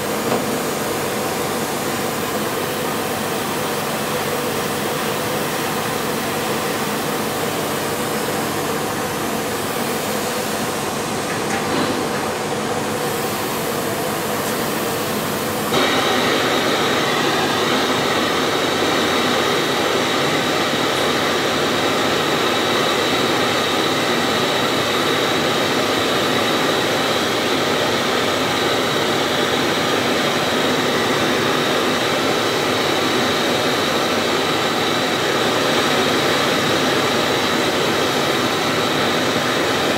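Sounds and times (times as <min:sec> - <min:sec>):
blowtorch flame roaring: 0:00.0 - 0:39.9.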